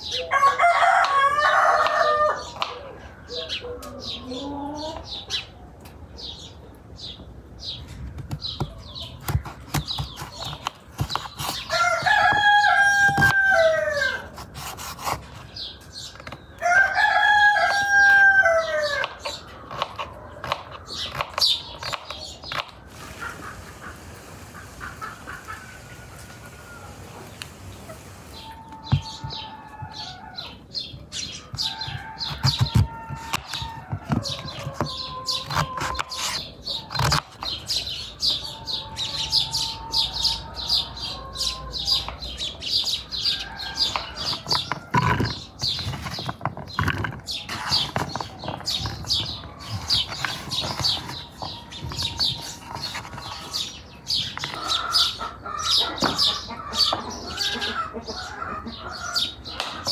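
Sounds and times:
chickens clucking: 0:00.0 - 0:06.8, 0:07.7 - 0:59.9
birds calling: 0:00.0 - 0:59.9
knife cutting on wooden board: 0:14.2 - 0:15.4.

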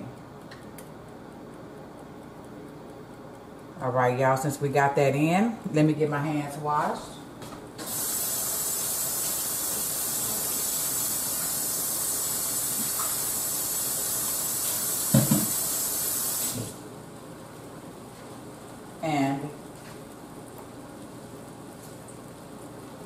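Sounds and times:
tap water running: 0:07.8 - 0:16.8.

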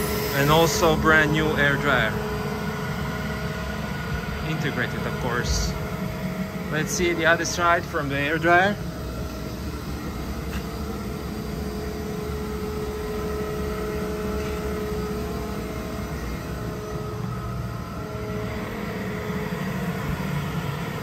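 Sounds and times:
air compressor humming: 0:00.0 - 0:21.0.

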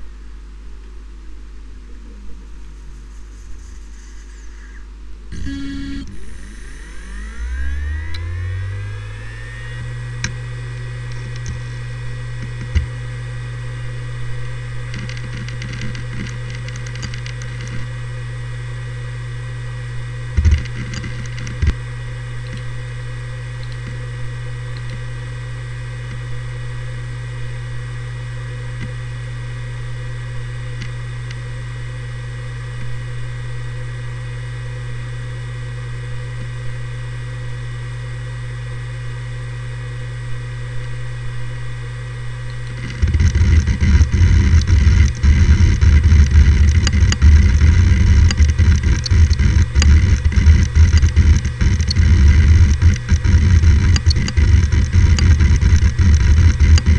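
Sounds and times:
hard drive hum and whine: 0:00.0 - 0:56.9
hard drive clunks: 0:05.3 - 0:13.0, 0:20.4 - 0:21.8, 0:42.5 - 0:56.9
hard drive heads clicking: 0:42.6 - 0:56.9.

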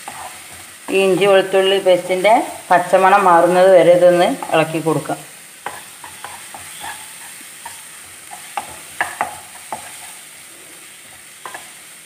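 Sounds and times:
wooden spoon scraping a pan: 0:00.0 - 0:01.4, 0:05.6 - 0:11.8
faint sizzle of frying: 0:00.0 - 0:12.0.

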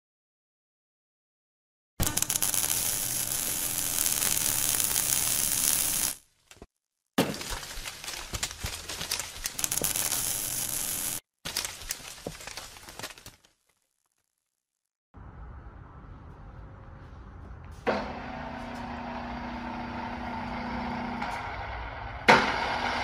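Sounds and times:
dense hissy crackle of clicks: 0:08.0 - 0:13.8.

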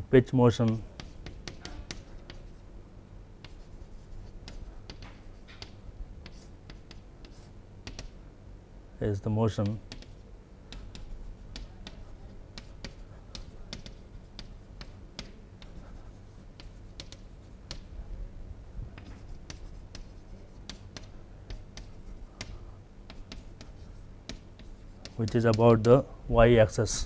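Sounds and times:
chalk writing on chalkboard: 0:00.6 - 0:02.6, 0:03.4 - 0:08.2, 0:09.5 - 0:18.0, 0:18.9 - 0:26.1.

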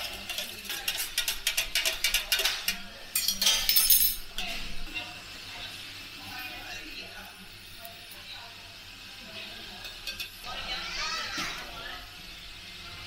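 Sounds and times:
spoon clinking in metal mugs: 0:00.0 - 0:04.4.

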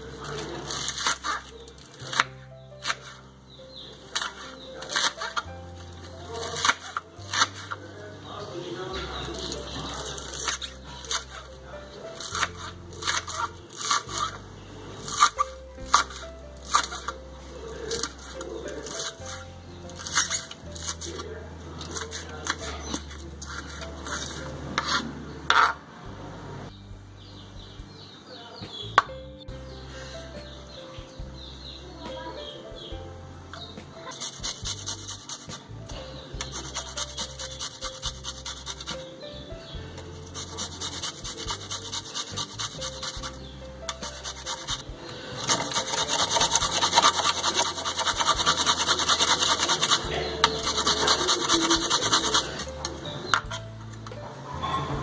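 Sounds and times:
garlic scraping on metal grater: 0:00.3 - 0:03.2, 0:04.1 - 0:05.5, 0:06.2 - 0:07.8, 0:09.2 - 0:14.4, 0:15.0 - 0:17.2, 0:17.8 - 0:21.2, 0:21.8 - 0:25.7, 0:34.1 - 0:35.7, 0:36.3 - 0:39.1, 0:40.2 - 0:53.6.

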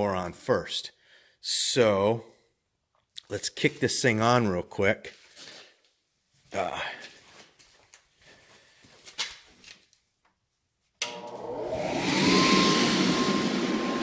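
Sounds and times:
blower motor whining and rushing: 0:11.0 - 0:14.0.

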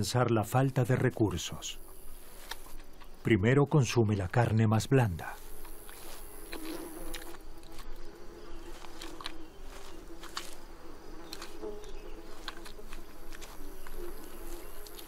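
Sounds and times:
flies buzzing: 0:00.0 - 0:03.4, 0:04.4 - 0:15.0
animal chewing and tearing meat: 0:05.5 - 0:08.0, 0:08.6 - 0:15.0.

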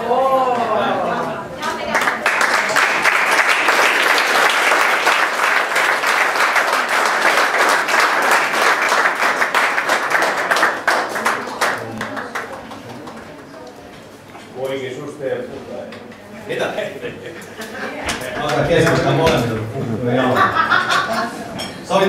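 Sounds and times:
audience applauding: 0:01.8 - 0:13.6.

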